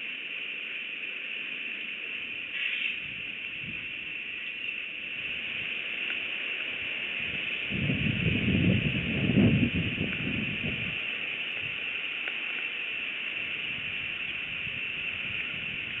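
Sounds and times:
steady high hiss: 0.0 - 16.0
bird call: 2.5 - 3.0.

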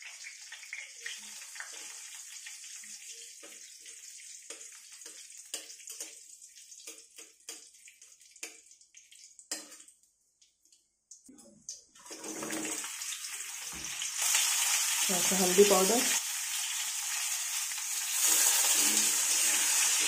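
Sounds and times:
spices sizzling in hot oil: 0.0 - 20.0
spatula scraping a pan: 18.2 - 20.0.

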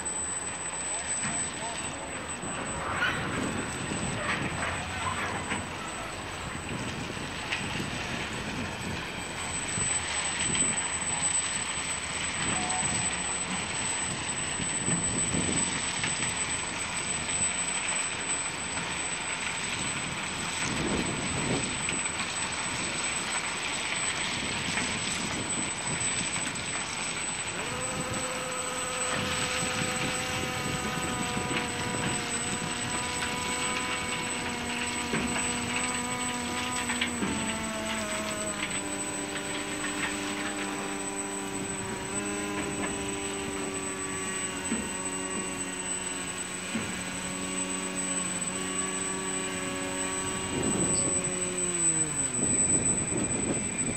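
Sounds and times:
multi-tone whine: 0.0 - 53.9.

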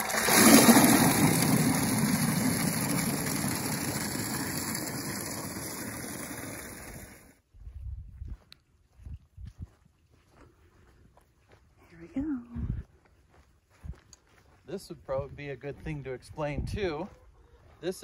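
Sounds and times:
water gushing into plastic bucket: 0.0 - 7.3.

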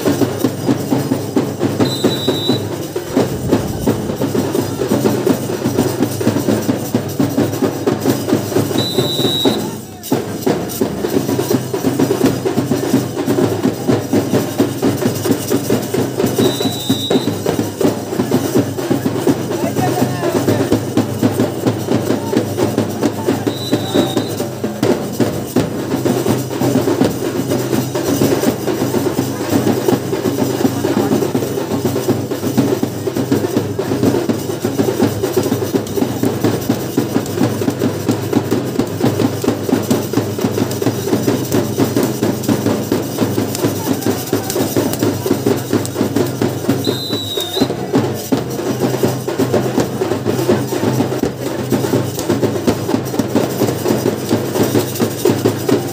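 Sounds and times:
drums beating fast rhythm: 0.0 - 55.9.

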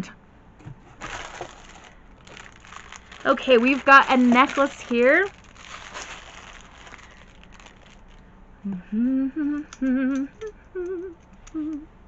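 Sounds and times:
woman humming: 8.6 - 12.0.

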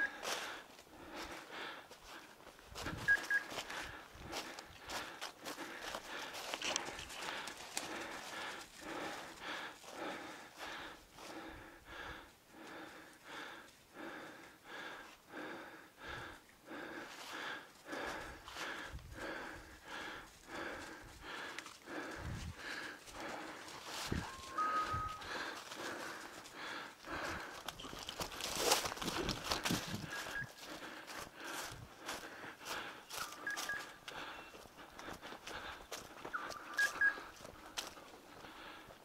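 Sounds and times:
heavy breathing: 0.0 - 39.0
footsteps crunching on dry leaves: 2.0 - 9.2, 22.4 - 34.3.

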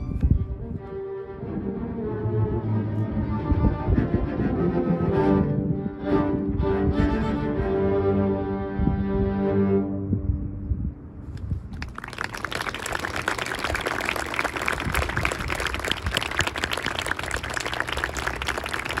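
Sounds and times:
audience applause: 11.7 - 19.0.

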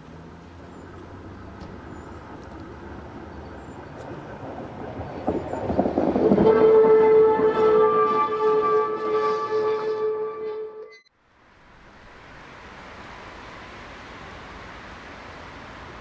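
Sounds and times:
tram wheels rumbling on rails: 0.0 - 10.8.

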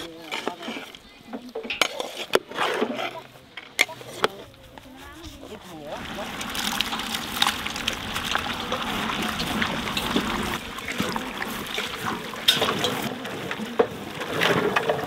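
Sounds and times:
curry bubbling in pot: 5.0 - 14.2.

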